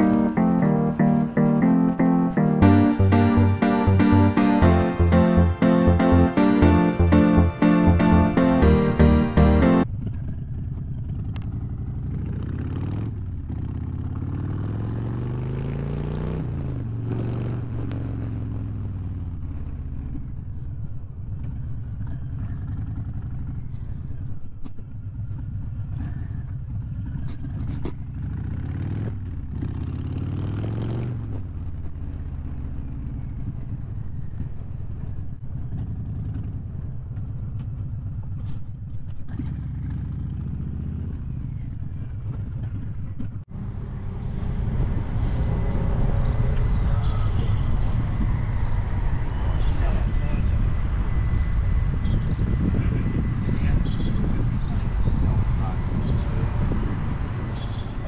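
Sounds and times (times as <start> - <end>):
motorcycle engine accelerating: 6.1 - 20.6, 21.3 - 49.8.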